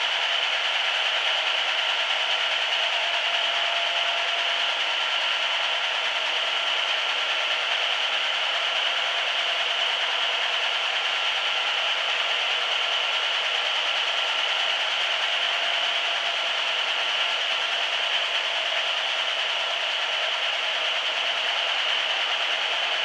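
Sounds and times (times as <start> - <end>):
rug dusting machine running: 0.1 - 23.0.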